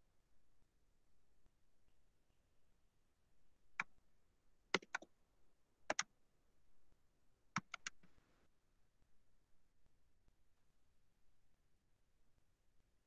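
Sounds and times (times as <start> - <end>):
computer mouse clicks: 4.8 - 5.1, 7.6 - 8.1.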